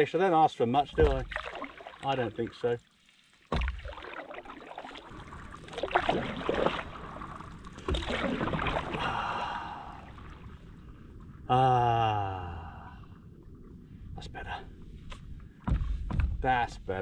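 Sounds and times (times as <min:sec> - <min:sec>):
paddle splashing in water: 0:00.9 - 0:10.6
thump: 0:03.5 - 0:03.9, 0:15.6 - 0:16.4.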